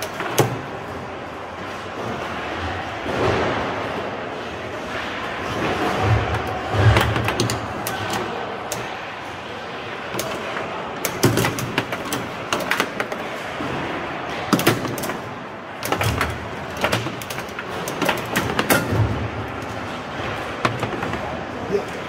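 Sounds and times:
background hum of hall: 0.0s - 22.0s
foosball ball clacks: 5.7s - 8.9s, 10.1s - 13.8s, 14.4s - 21.4s.

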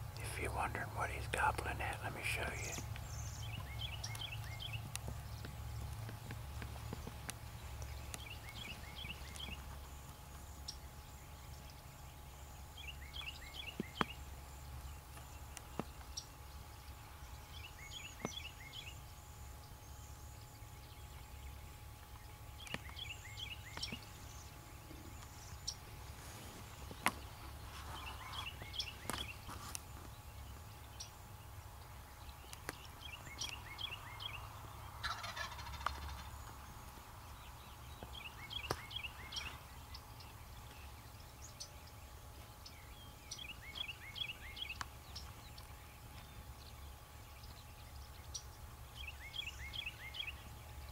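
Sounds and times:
turkey gobbling: 35.0s - 36.3s.

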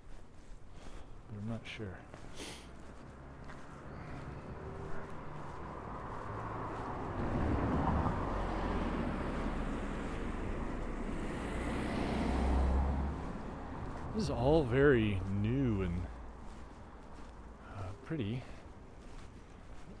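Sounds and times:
car driving past: 2.8s - 15.4s.

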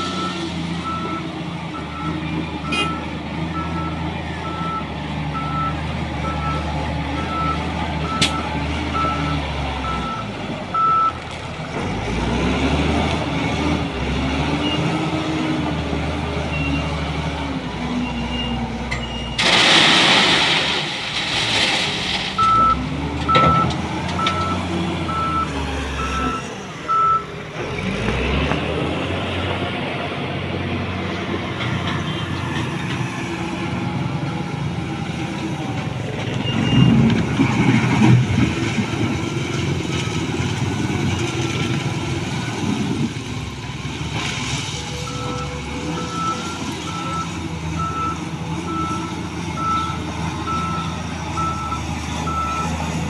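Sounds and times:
diesel engine under load: 0.0s - 53.0s
stone pouring into wagon: 19.3s - 22.8s
reversing alarm beeping: 22.4s - 27.3s.

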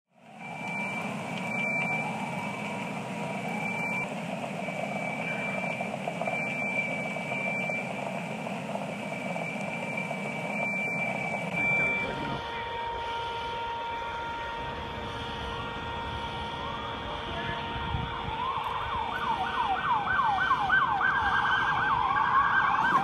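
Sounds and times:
high thin alarm tone: 0.4s - 18.5s.

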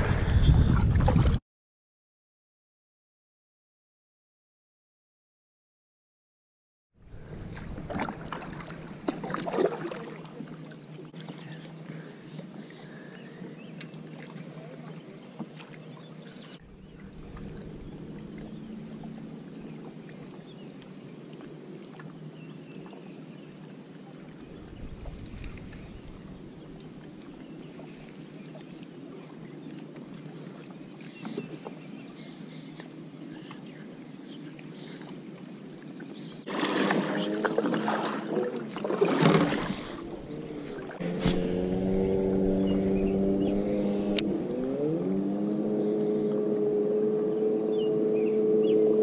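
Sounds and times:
water lapping against hull: 0.0s - 1.4s, 7.1s - 49.0s
low rumble: 16.6s - 19.8s, 24.4s - 26.8s, 39.9s - 44.4s.

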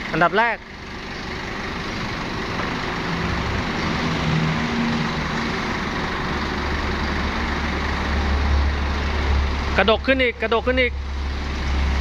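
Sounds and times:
forklift engine running: 0.0s - 12.0s
deep hydraulic hum: 0.8s - 9.8s.

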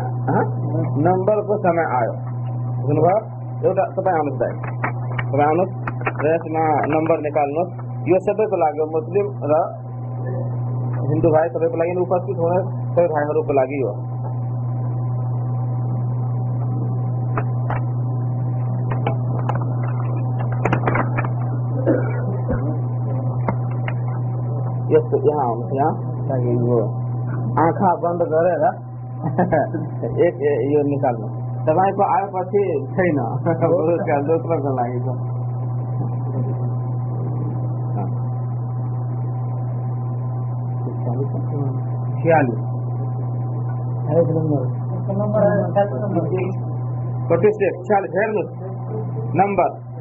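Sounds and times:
low electrical hum: 0.0s - 50.0s
faint background murmur: 18.8s - 28.0s.

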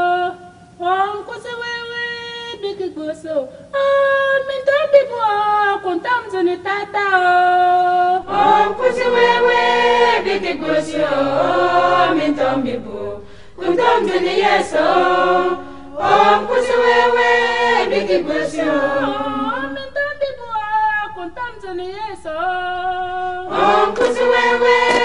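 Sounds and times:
choir singing a hymn: 7.6s - 21.4s, 22.4s - 25.0s.

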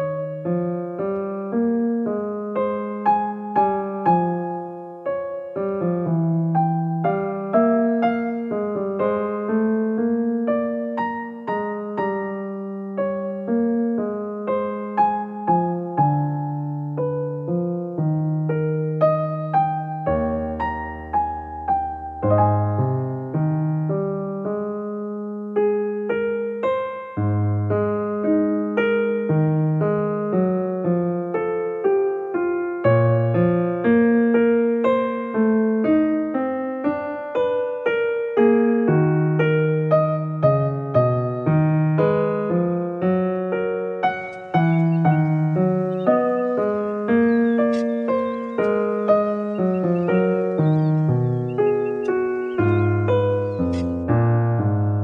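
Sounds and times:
piano single notes: 0.0s - 31.2s, 39.2s - 55.0s
held low bass notes: 44.2s - 55.0s.

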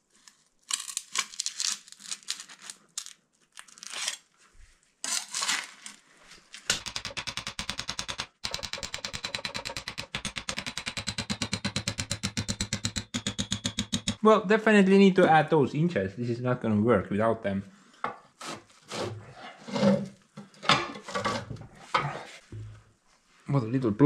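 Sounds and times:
fast even knocks: 6.7s - 14.2s.

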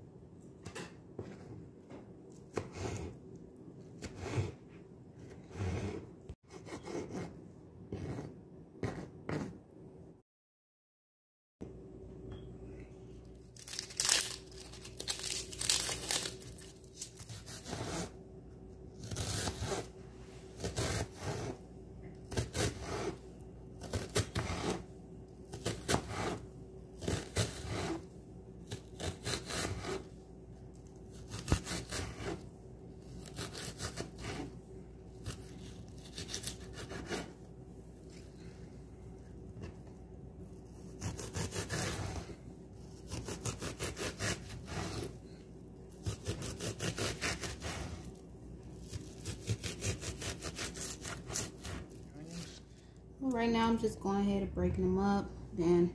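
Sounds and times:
knife slicing onion on board: 2.3s - 3.2s, 4.0s - 9.6s, 19.0s - 19.9s, 20.6s - 21.6s, 22.2s - 23.2s, 23.8s - 24.9s, 25.5s - 30.2s, 31.1s - 32.4s, 33.0s - 34.6s, 35.2s - 37.4s, 40.7s - 45.1s, 45.9s - 48.1s, 48.8s - 52.0s.

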